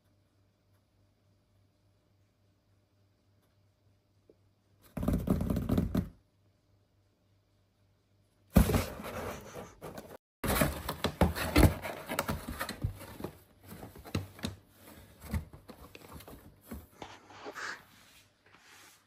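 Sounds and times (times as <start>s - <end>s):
kitten scrambling in cardboard box: 8.6s - 17.0s.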